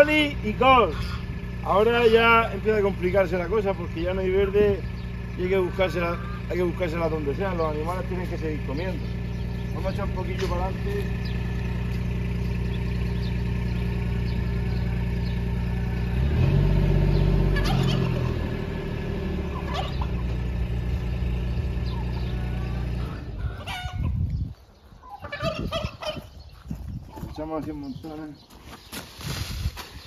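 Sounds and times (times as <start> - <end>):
small vehicle engine revving: 0.0 - 23.9
turkeys gobbling: 0.5 - 2.6, 4.7 - 11.6, 17.4 - 20.6, 21.8 - 24.2, 24.9 - 26.4.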